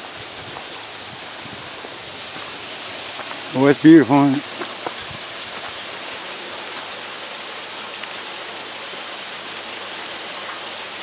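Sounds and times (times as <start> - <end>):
small waterfall splashing: 0.0 - 11.0.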